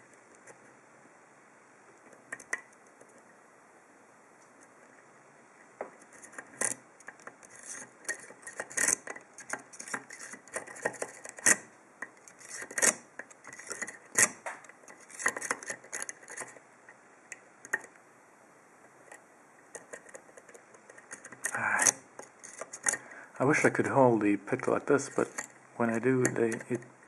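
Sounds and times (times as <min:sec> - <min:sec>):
lock pick clicking and scraping: 0:02.0 - 0:03.2, 0:06.0 - 0:18.0, 0:19.0 - 0:23.1, 0:25.0 - 0:26.9.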